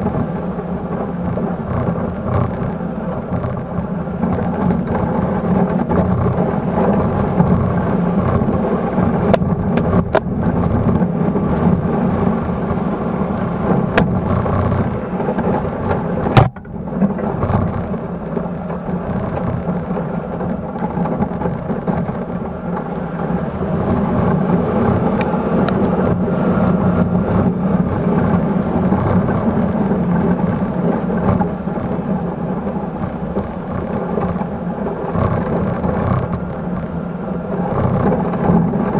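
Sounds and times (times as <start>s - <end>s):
plow blade pushing snow: 0.0s - 38.9s
small truck engine and tyres: 0.0s - 38.9s
sharp knocks: 16.3s - 16.8s.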